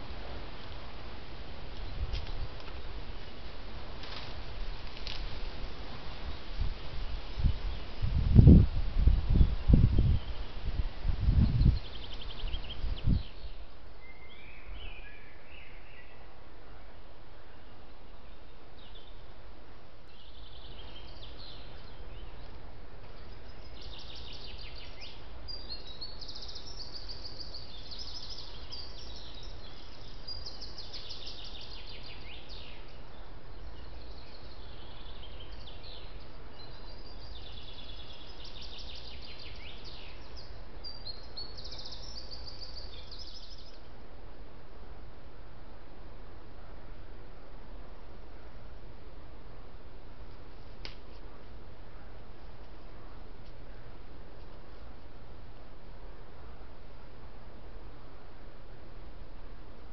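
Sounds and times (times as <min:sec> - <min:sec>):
steady hiss and low hum: 0:00.0 - 0:59.9
songbirds singing: 0:01.6 - 0:44.1.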